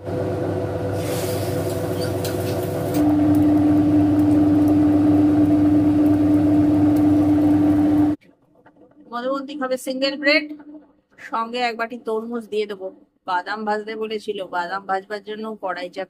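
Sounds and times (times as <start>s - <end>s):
machine hum: 0.0s - 9.1s
egg frying in a pan: 0.9s - 8.2s.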